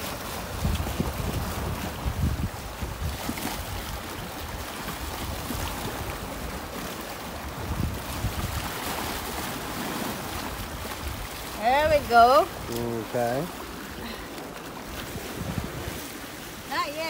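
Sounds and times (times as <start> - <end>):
wind gusting on microphone: 0.0 - 14.1, 14.8 - 17.0
waves splashing against rocks: 0.0 - 17.0.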